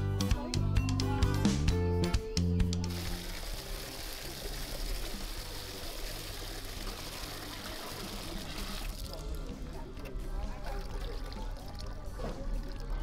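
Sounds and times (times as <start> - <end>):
water pouring and splashing: 2.9 - 13.0.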